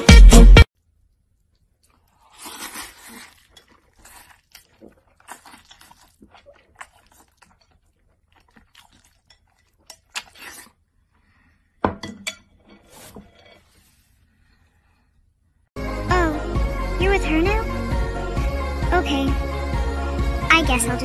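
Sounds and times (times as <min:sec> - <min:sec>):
chewing: 0:01.1 - 0:11.4
slurping: 0:01.3 - 0:11.6.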